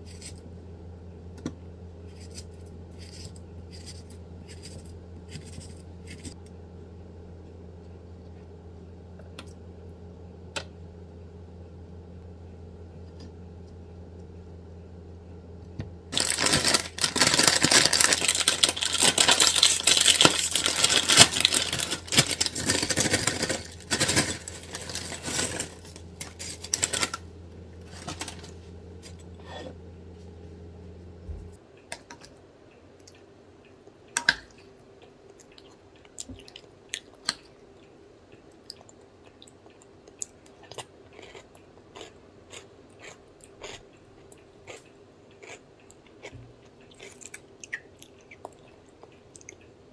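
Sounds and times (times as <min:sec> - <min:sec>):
plastic chip bag crinkling: 0:16.1 - 0:29.2.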